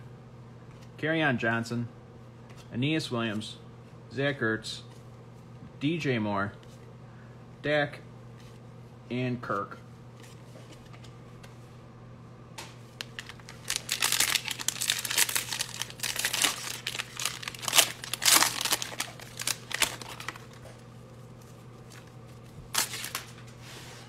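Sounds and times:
foil wrapper tearing and crinkling: 0:13.0 - 0:20.6, 0:22.7 - 0:23.4.

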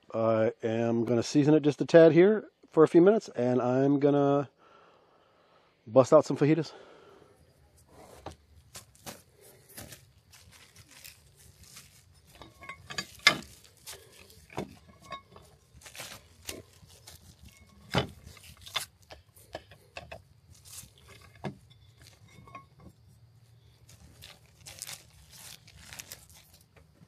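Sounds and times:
plastic bag crinkling: 0:08.7 - 0:19.1, 0:20.5 - 0:22.2, 0:23.7 - 0:26.8.

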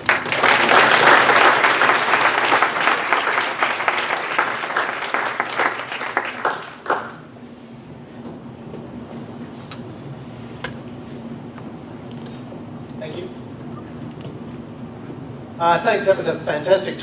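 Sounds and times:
audience applause: 0:00.0 - 0:07.2.

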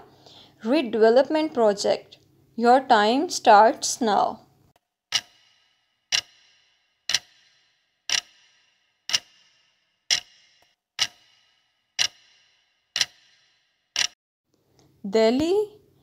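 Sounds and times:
clock ticking: 0:05.1 - 0:14.2.

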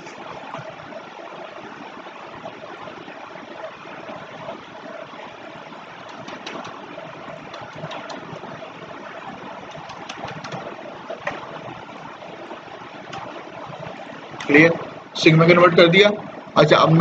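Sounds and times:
background hiss and hum: 0:00.0 - 0:17.0
keyboard keys clicking: 0:06.0 - 0:06.8, 0:07.5 - 0:08.4, 0:09.7 - 0:10.7.

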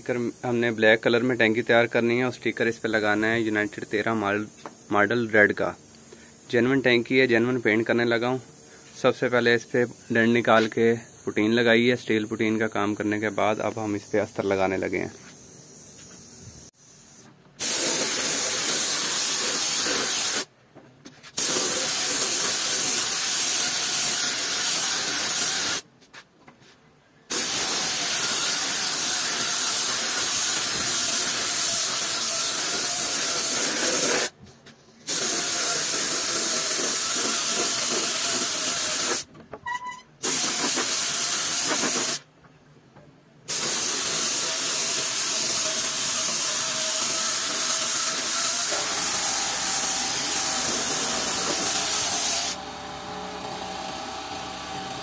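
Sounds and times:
spray gun hissing: 0:15.2 - 0:20.5, 0:21.4 - 0:25.8, 0:27.3 - 0:34.3, 0:35.1 - 0:39.3, 0:40.2 - 0:42.2, 0:43.5 - 0:52.6.

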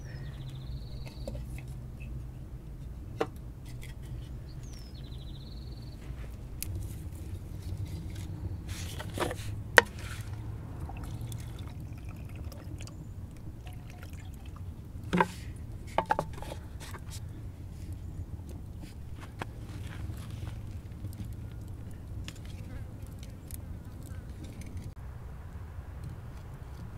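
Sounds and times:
liquid trickling into clay pot: 0:09.8 - 0:16.6.

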